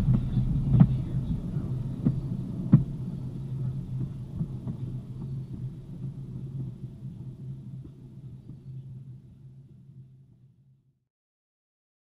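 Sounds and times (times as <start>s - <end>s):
train wheels clicking on rails: 0.0s - 6.8s
train low rumble: 0.0s - 10.6s.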